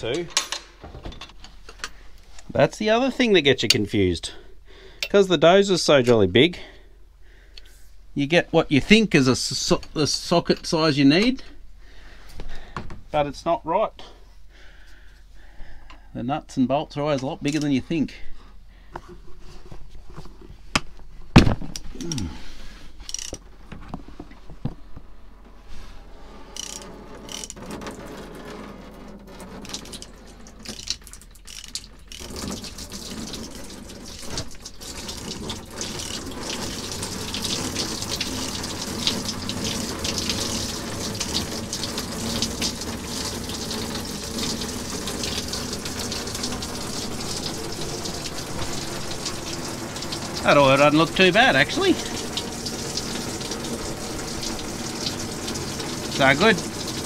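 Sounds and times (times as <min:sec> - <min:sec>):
oil gushing into plastic tub: 0:27.1 - 0:57.0.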